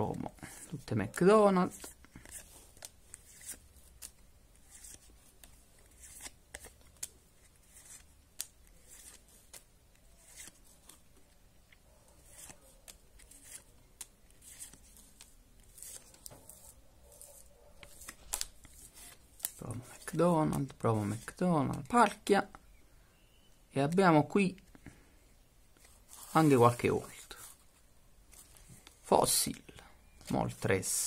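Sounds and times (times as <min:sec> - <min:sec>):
cards sliding with soft swishes: 0:01.7 - 0:11.4, 0:12.2 - 0:22.0, 0:25.7 - 0:29.0.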